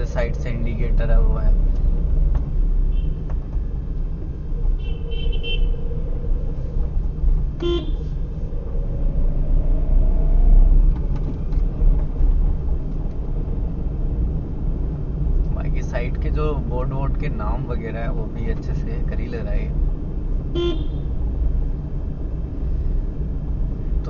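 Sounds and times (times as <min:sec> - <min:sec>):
car road and engine rumble: 0:00.0 - 0:24.0
car horn toot: 0:04.8 - 0:05.7, 0:07.6 - 0:08.0, 0:20.5 - 0:21.1.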